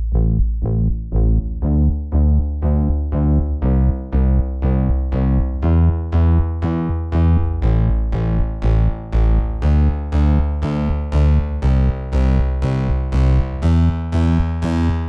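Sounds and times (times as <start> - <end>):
synthesizer music: 4.6 - 15.0.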